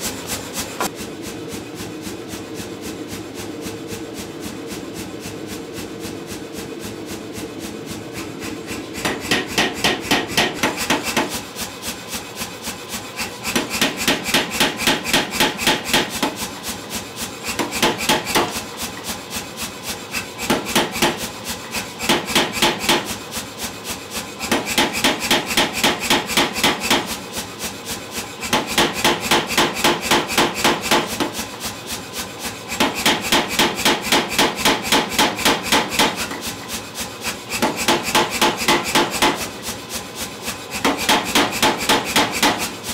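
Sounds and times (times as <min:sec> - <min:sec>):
power hammer machine noise: 0:00.0 - 0:42.9
hammer ram striking steel: 0:09.0 - 0:11.3.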